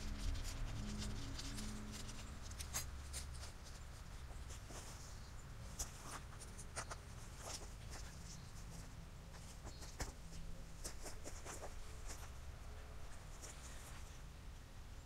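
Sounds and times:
fabric scratching and rustling: 0:00.0 - 0:14.2
steady low hum: 0:00.0 - 0:15.0.

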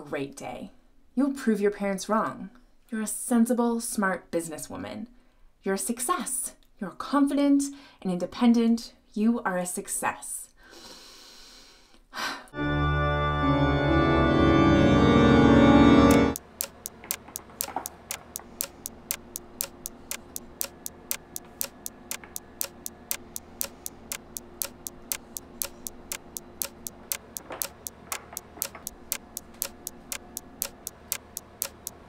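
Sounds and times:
clock ticking: 0:16.1 - 0:32.0
faint steady hum: 0:16.1 - 0:32.0.

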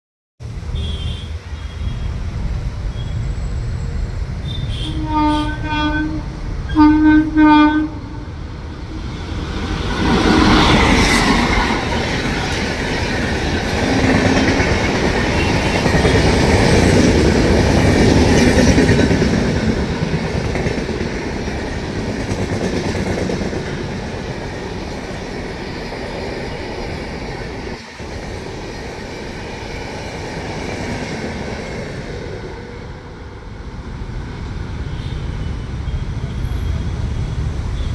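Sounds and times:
train wheels on rail: 0:00.5 - 0:37.9
locomotive horn blast: 0:00.8 - 0:02.1, 0:04.4 - 0:08.3.

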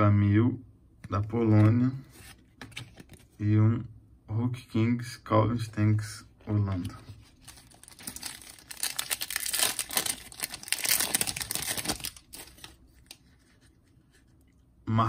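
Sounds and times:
plastic wrapper tearing and crinkling: 0:07.2 - 0:13.2.

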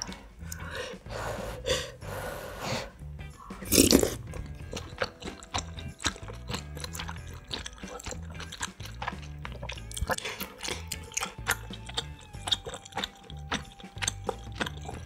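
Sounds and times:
chewing noodles: 0:03.4 - 0:15.0
wet mouth clicks: 0:03.5 - 0:15.0
loud slurp: 0:03.6 - 0:15.0.

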